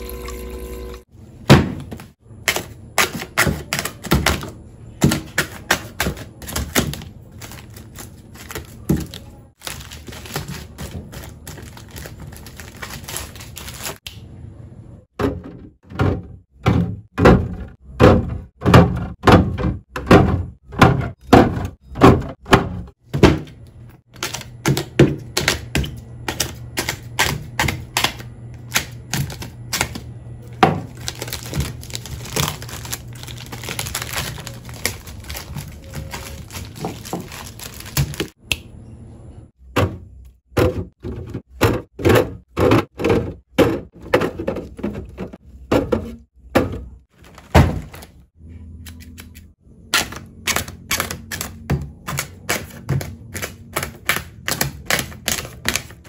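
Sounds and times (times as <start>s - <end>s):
shrink-wrap crinkling: 6.4s - 14.0s, 30.9s - 38.4s
plastic bottles knocking into bin: 15.2s - 23.6s, 39.7s - 48.1s.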